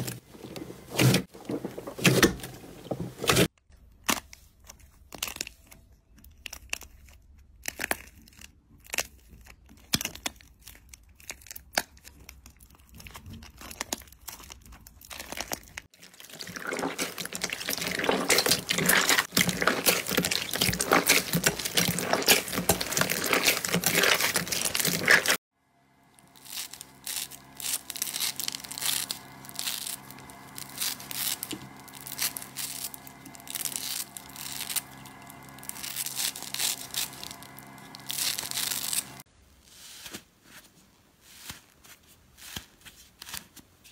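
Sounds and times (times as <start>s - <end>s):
slime crackling: 7.6s - 25.4s, 26.2s - 39.2s
low steady hum: 16.0s - 39.3s.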